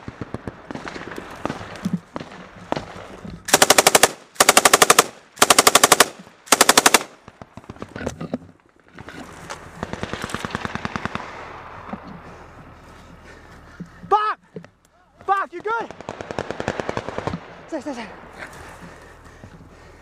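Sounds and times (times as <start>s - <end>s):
distant automatic gunfire: 0.0s - 7.8s, 9.8s - 11.9s, 15.8s - 17.8s
machine gun bursts: 3.5s - 7.1s.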